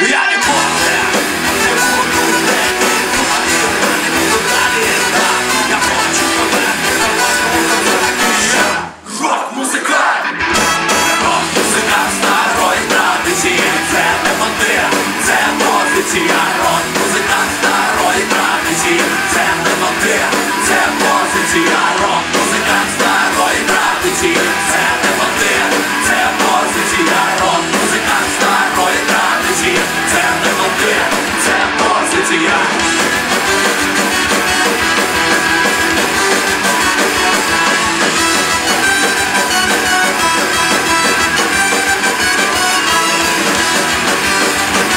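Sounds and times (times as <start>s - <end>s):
electric guitars: 0.0s - 9.0s, 10.0s - 44.9s
live band playing rock: 0.0s - 9.0s, 10.0s - 44.9s
shouted vocal: 0.0s - 32.8s.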